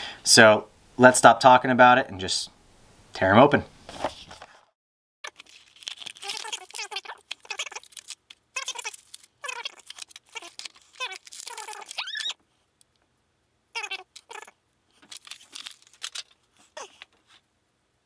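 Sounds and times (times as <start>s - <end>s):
plastic packaging crinkling: 5.2s - 12.4s, 13.8s - 17.4s.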